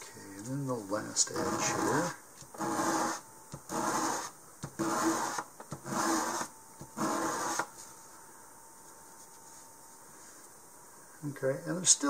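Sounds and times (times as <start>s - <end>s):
fins rasping on sandpaper: 1.4s - 7.7s.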